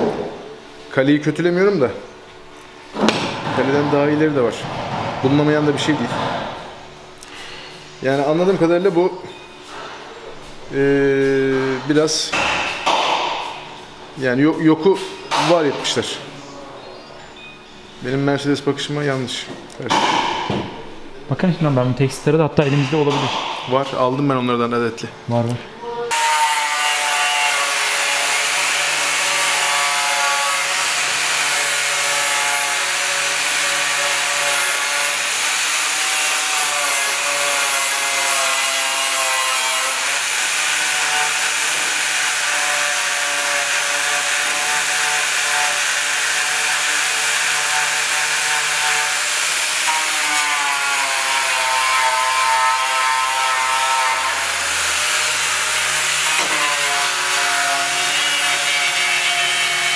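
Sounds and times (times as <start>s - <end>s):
power tool grinding with whine: 26.1s - 59.9s.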